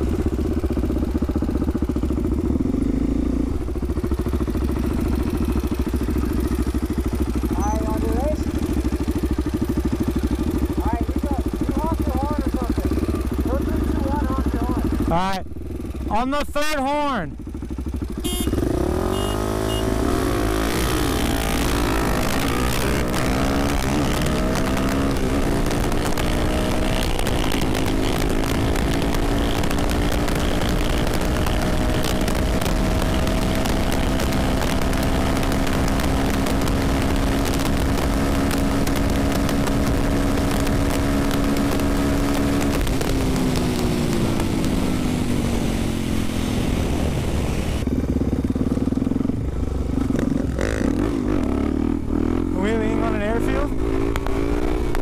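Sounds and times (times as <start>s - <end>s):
motorcycle engine: 0.0s - 55.0s
wind rush: 41.0s - 48.0s.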